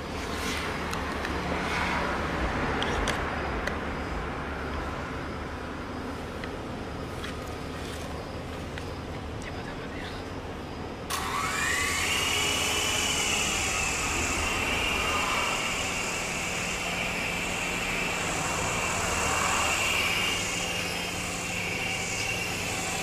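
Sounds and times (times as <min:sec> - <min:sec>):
toy helicopter motor whine: 0:11.1 - 0:23.0.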